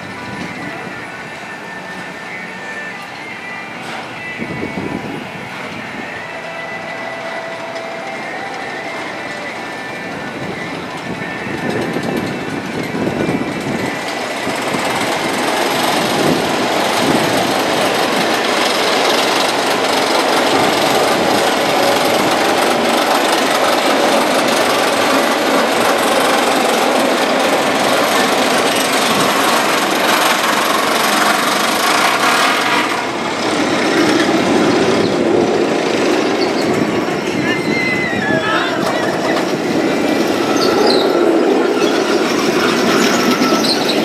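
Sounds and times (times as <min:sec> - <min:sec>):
roller coaster running on track: 0:00.0 - 0:44.0.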